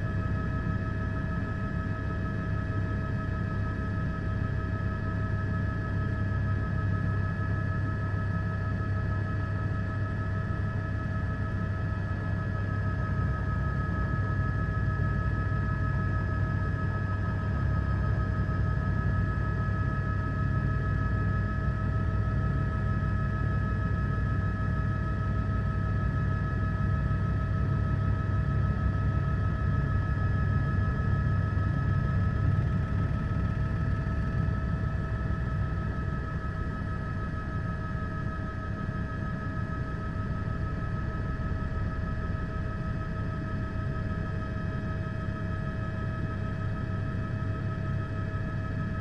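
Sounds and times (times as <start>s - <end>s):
helicopter engine and rotor: 0.0s - 49.0s.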